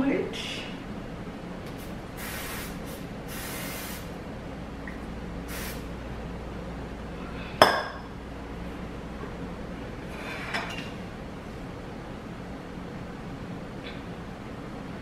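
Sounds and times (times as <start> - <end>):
aerosol spray can hissing: 2.2 - 4.1, 5.5 - 5.8.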